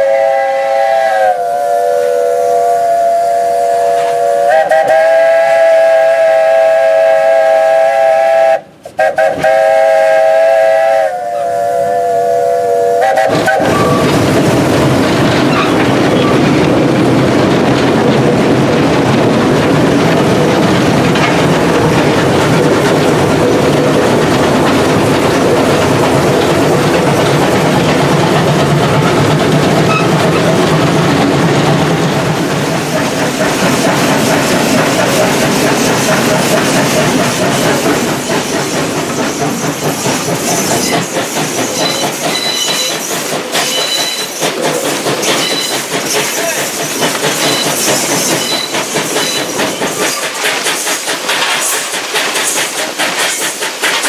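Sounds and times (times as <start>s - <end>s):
steam locomotive whistle: 0.0s - 14.0s, 29.9s - 30.2s, 41.7s - 43.0s, 43.6s - 44.4s, 45.2s - 46.6s
locomotive running noise: 8.8s - 54.0s.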